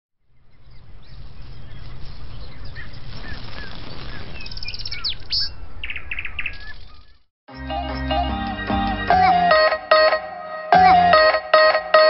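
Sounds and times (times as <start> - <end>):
birds chirping: 0.2 - 9.5.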